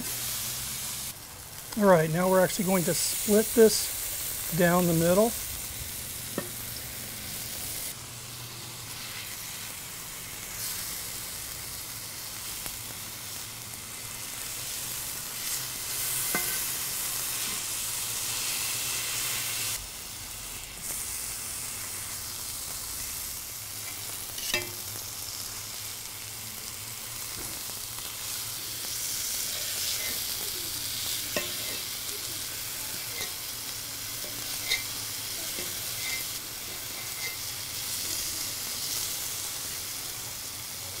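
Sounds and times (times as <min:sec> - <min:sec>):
steak sizzling on griddle: 0:00.0 - 0:41.0
knife and fork clicking on griddle: 0:34.2 - 0:34.9, 0:35.5 - 0:37.5.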